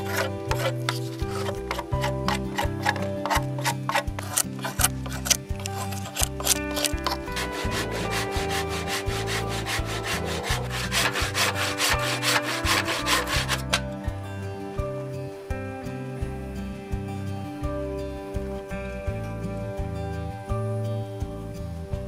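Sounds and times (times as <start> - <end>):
hand tool scraping wood: 0.0 - 14.0
soft guitar music: 0.0 - 22.0.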